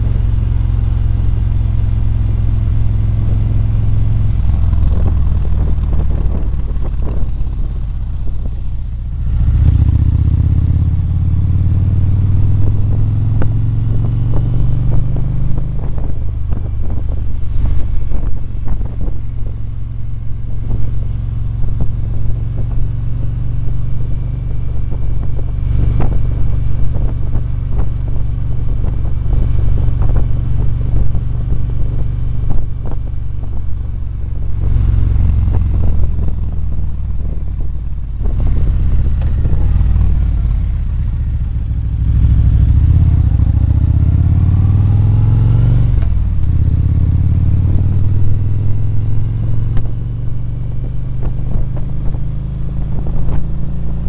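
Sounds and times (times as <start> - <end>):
motorcycle engine running: 0.0 - 54.0
wind buffeting microphone: 2.4 - 54.0.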